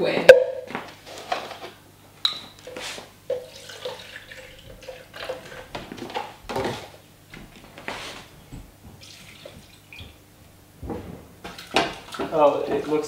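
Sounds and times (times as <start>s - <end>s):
milk pouring and splashing: 3.3s - 6.1s, 9.0s - 10.1s, 11.5s - 13.0s.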